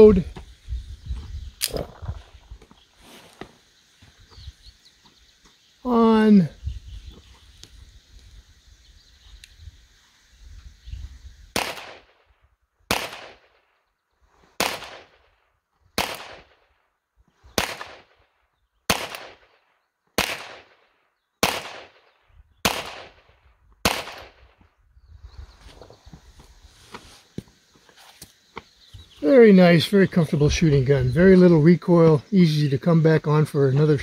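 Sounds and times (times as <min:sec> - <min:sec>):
pistol shots with echo: 0:11.6 - 0:12.2, 0:12.9 - 0:13.6, 0:14.6 - 0:15.3, 0:16.0 - 0:16.6, 0:17.6 - 0:18.2, 0:18.9 - 0:20.8, 0:21.4 - 0:24.6.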